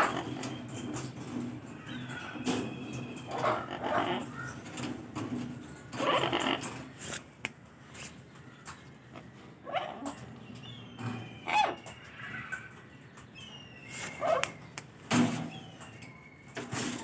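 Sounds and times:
parrot squawking: 3.3s - 4.5s, 6.0s - 7.2s, 11.2s - 12.7s, 14.0s - 14.6s.

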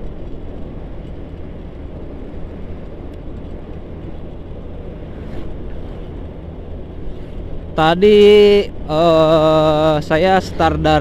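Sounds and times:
scooter engine drone: 0.0s - 11.0s
vehicle passing: 0.0s - 11.0s
wind and road rumble: 0.0s - 11.0s.

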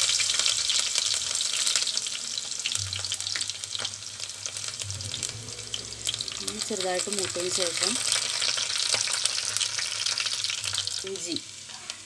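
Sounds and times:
sharp pops of frying: 0.0s - 4.8s, 7.3s - 12.0s
garlic sizzling in oil: 0.0s - 12.0s.

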